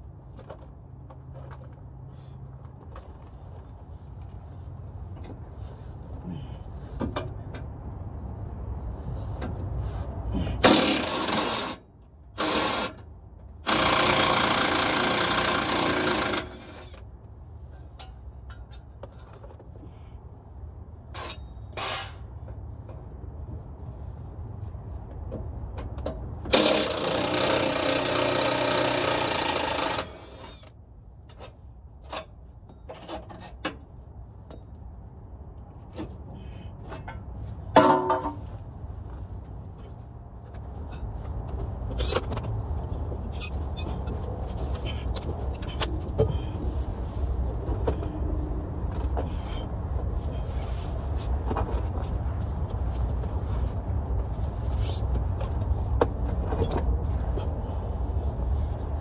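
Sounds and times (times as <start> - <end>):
impact wrench bursts: 10.6 - 11.8, 12.4 - 13.0, 13.6 - 17.0, 26.5 - 30.7.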